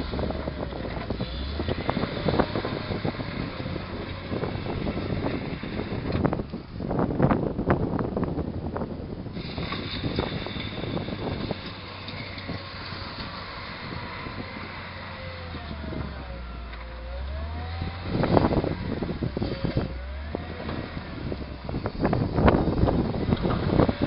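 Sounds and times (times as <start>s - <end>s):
wheel loader diesel engine: 0.0s - 24.0s.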